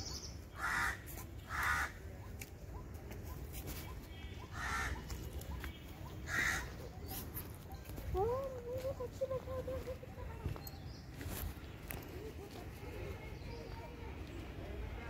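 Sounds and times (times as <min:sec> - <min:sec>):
crow cawing: 0:00.6 - 0:02.0, 0:04.5 - 0:05.0, 0:06.3 - 0:06.7.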